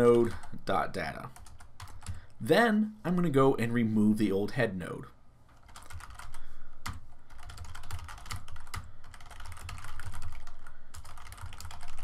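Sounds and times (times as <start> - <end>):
keyboard typing: 1.3 - 2.4, 5.5 - 12.0.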